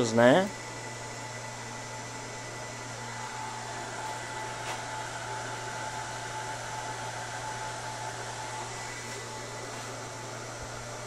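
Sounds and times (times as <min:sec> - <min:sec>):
electrical hum: 0:00.0 - 0:11.0
faint constant whine: 0:00.0 - 0:11.0
fan-like whir: 0:00.0 - 0:11.0.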